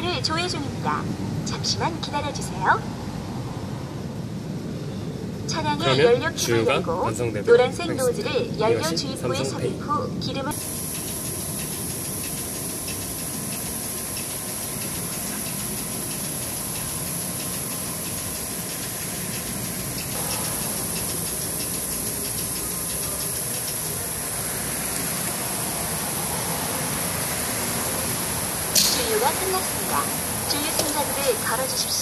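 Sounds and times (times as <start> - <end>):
fuel dispenser hum: 10.5 - 31.5
fuel flow rushing hiss: 10.5 - 32.0.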